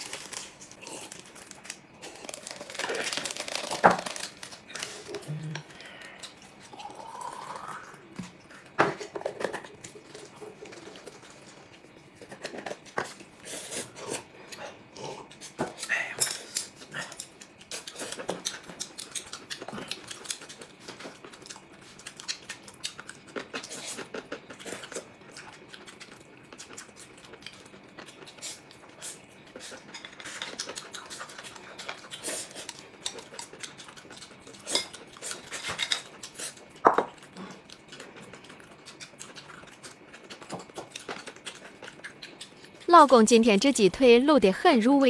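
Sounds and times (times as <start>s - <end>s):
people slurping and chewing noodles: 0.0s - 43.8s.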